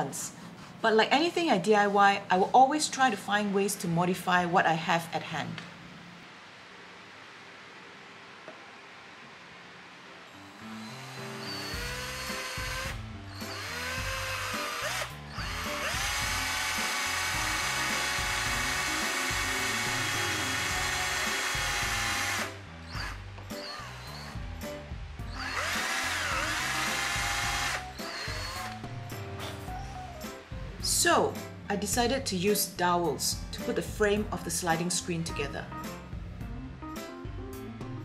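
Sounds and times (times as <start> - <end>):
cordless drill motor whining: 10.5 - 24.5, 25.2 - 28.8.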